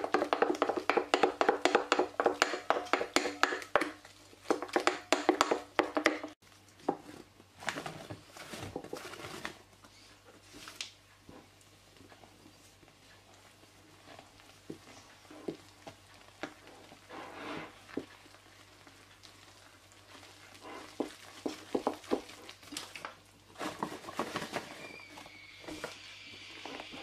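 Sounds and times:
wooden spoon scraping glass bowl: 16.6s - 18.0s.

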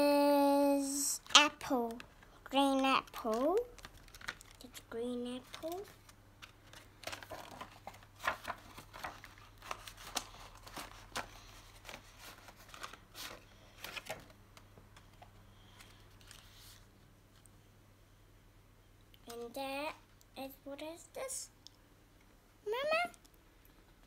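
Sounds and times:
plastic packaging crinkling: 1.2s - 17.5s.

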